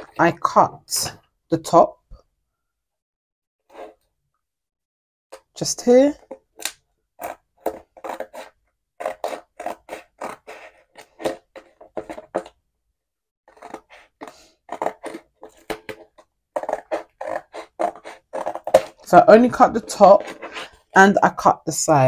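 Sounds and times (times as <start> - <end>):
scissors snipping cardboard: 6.3 - 12.5, 13.5 - 19.0.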